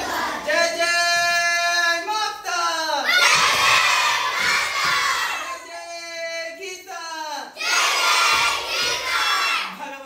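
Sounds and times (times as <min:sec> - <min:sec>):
children singing: 0:00.0 - 0:00.5, 0:07.6 - 0:09.8
children shouting together: 0:07.6 - 0:09.8.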